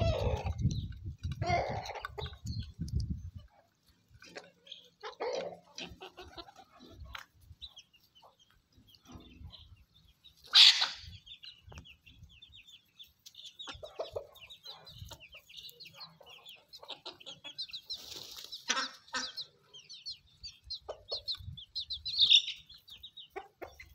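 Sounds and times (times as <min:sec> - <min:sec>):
chickens clucking: 0:00.0 - 0:23.9
chicks peeping: 0:00.0 - 0:23.9
loud sharp chicken call: 0:10.5 - 0:11.1.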